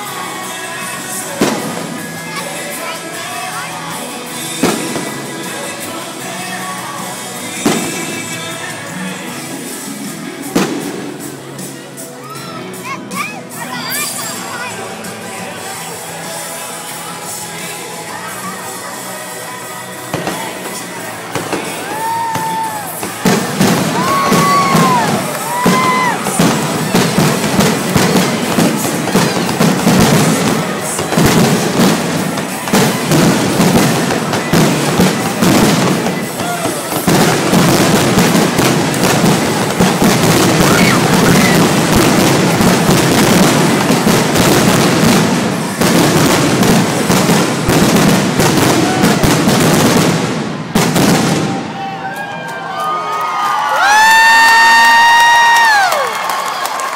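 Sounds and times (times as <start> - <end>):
fireworks banging: 0.0 - 12.1, 20.0 - 51.8
fireworks whistling: 0.1 - 2.9, 4.3 - 5.9, 7.4 - 8.6, 20.1 - 51.8.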